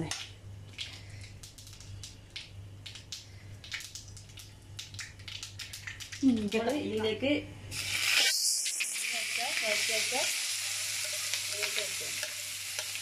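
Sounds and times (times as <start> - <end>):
mustard seeds popping: 0.0 - 6.8
oil sizzling: 0.2 - 13.0.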